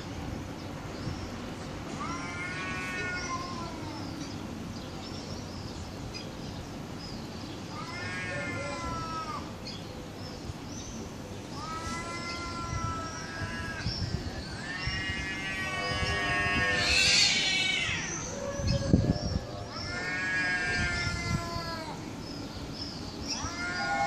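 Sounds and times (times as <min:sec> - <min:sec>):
cats yowling: 0:01.9 - 0:04.1, 0:07.7 - 0:09.5, 0:11.5 - 0:22.1, 0:23.2 - 0:24.0.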